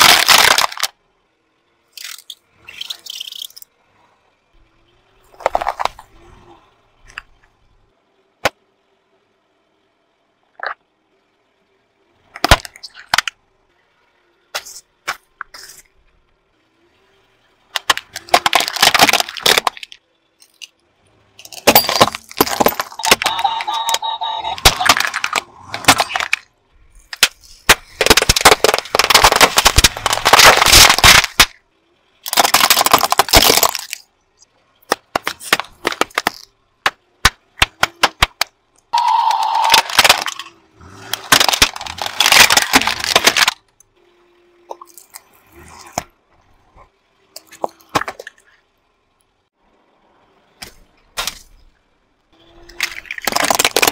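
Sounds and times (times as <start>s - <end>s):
plastic crunching under car tyre: 0.0s - 1.0s, 17.8s - 20.0s, 21.6s - 26.5s, 27.1s - 31.6s, 32.2s - 34.0s, 34.9s - 43.6s, 52.7s - 53.9s.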